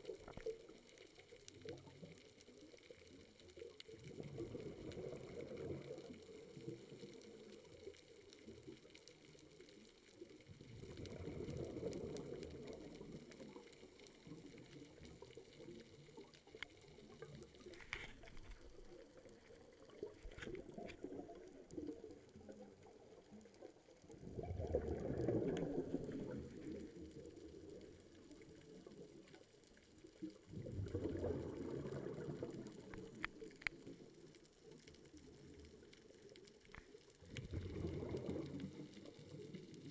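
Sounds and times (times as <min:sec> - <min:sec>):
faint sharp clicks: 0:00.0 - 0:23.7, 0:31.2 - 0:39.9
underwater regulator bubbling: 0:10.6 - 0:23.2, 0:24.0 - 0:27.8, 0:30.4 - 0:34.0, 0:37.2 - 0:39.9.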